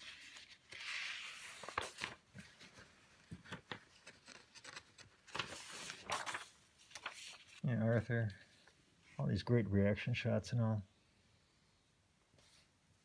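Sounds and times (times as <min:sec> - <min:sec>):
paper sheets sliding: 0:00.0 - 0:07.6
paper tapping and crinkling: 0:00.0 - 0:07.6.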